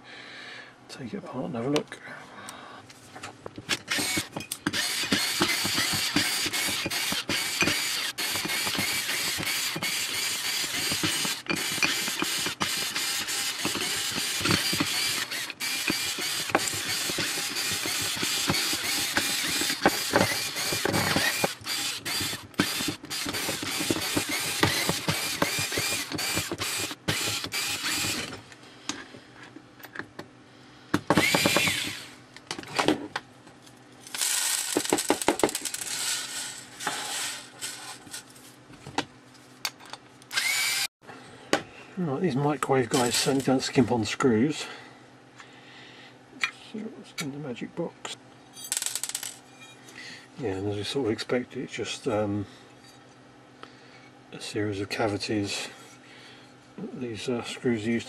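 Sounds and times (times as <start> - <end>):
electric screwdriver motor: 3.8 - 28.3, 31.1 - 32.2, 40.3 - 40.9.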